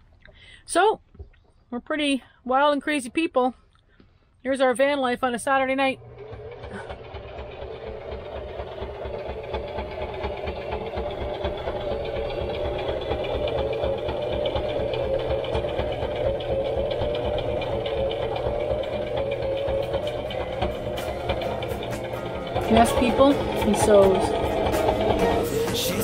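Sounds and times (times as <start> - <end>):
sewing machine rattling: 5.5 - 26.0.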